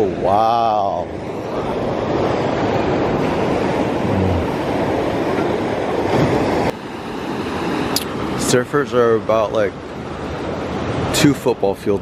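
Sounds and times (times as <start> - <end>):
ocean surf breaking: 0.0 - 12.0
wind: 0.0 - 12.0.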